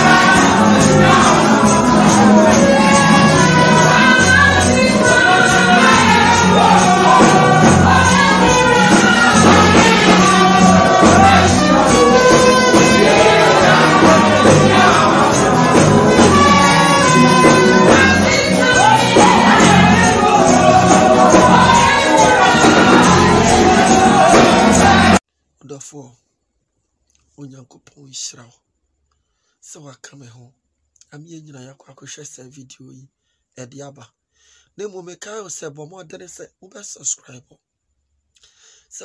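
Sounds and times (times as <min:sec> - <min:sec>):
amplified gospel band: 0:00.0 - 0:25.2.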